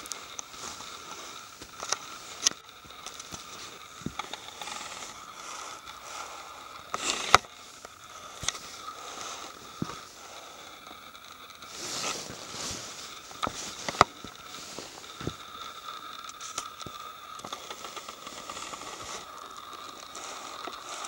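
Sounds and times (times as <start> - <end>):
handling noise rustles: 11.6 - 15.4.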